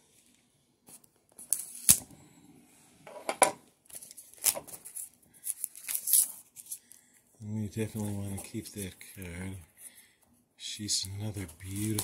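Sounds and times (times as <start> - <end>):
plastic shrink wrap crinkling: 3.8 - 9.6, 11.0 - 12.0.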